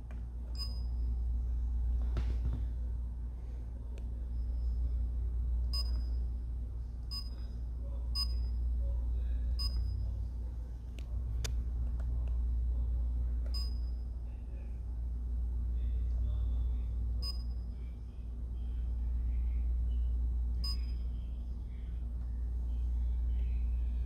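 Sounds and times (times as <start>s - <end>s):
steady low hum: 0.0s - 24.0s
short high beeps: 20.6s - 21.1s.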